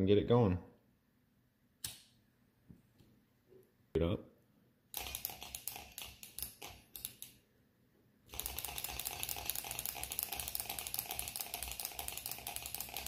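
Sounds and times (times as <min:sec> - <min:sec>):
irregular clicks of engine turned by hand: 0:08.3 - 0:13.0.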